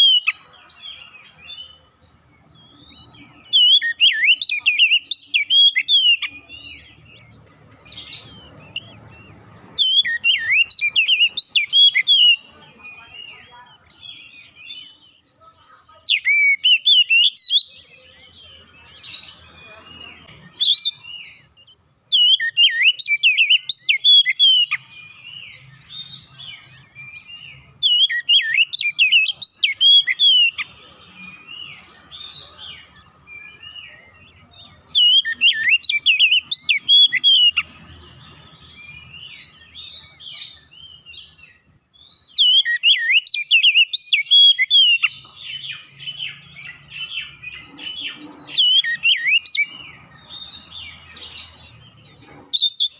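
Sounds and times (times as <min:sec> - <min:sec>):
bird singing whistled phrases: 0:00.0 - 0:00.4, 0:03.4 - 0:06.4, 0:09.8 - 0:12.4, 0:16.1 - 0:17.9, 0:22.1 - 0:34.0, 0:34.9 - 0:37.7, 0:39.2 - 0:49.7
soft bird twittering: 0:00.0 - 0:52.9.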